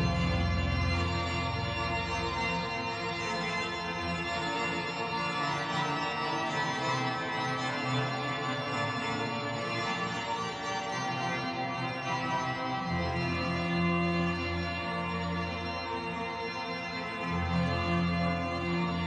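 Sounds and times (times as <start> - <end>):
organ playing sustained chords: 0.0 - 19.0.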